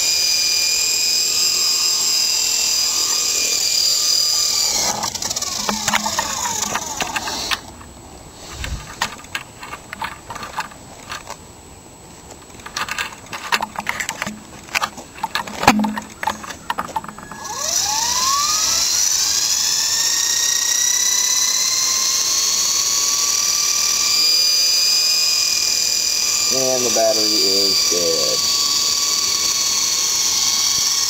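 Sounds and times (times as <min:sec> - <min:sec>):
model helicopter motor whine: 0:00.0 - 0:07.8, 0:12.8 - 0:31.0
clicks and knocks: 0:05.0 - 0:07.3, 0:12.6 - 0:17.3.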